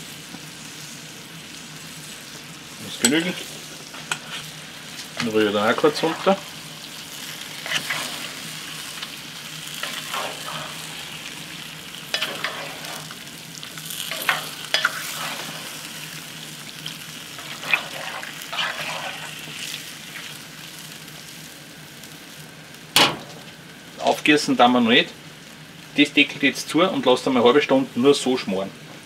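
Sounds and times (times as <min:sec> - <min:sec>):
food sizzling in a pot: 0:00.0 - 0:28.4
wooden spoon scraping a pot: 0:07.6 - 0:08.4, 0:12.1 - 0:13.1.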